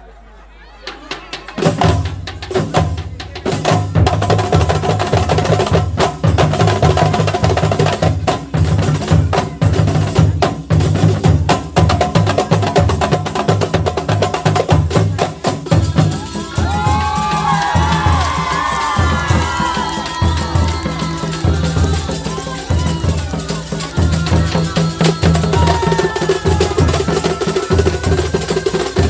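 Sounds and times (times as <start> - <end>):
frame drums struck by hand: 1.2 - 29.0
voices calling out: 15.0 - 29.0.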